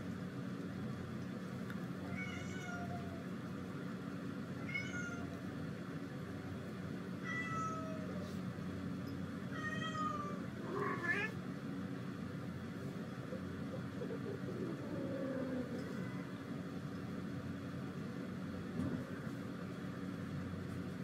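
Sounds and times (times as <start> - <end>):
steady low hum: 0.0 - 21.0
cat meowing: 2.1 - 3.2, 4.6 - 5.3, 7.2 - 8.2, 9.6 - 11.4.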